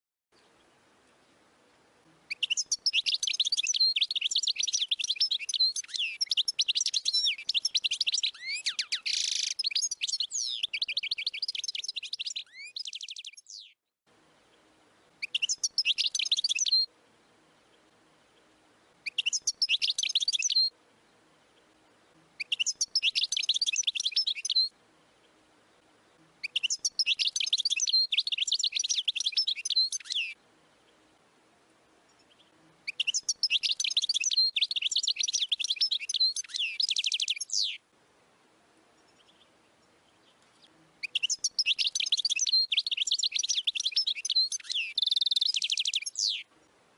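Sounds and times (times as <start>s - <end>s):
goldfinch singing: 2.3s - 13.8s, 15.2s - 16.9s, 19.0s - 20.7s, 22.4s - 24.7s, 26.4s - 30.4s, 32.2s - 37.8s, 40.2s - 46.5s.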